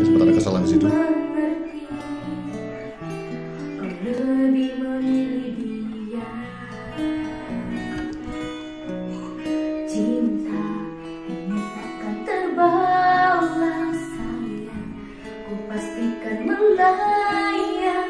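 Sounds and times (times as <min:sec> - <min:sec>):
woman singing pop ballad: 0:00.0 - 0:08.4, 0:09.8 - 0:18.0
guitar accompaniment: 0:00.0 - 0:18.0.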